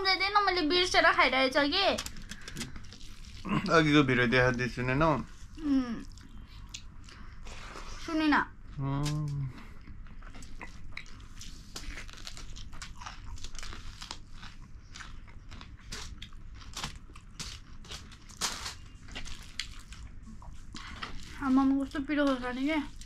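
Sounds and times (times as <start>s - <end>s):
chewing with mouth clicks: 5.3s - 8.0s, 9.0s - 23.0s.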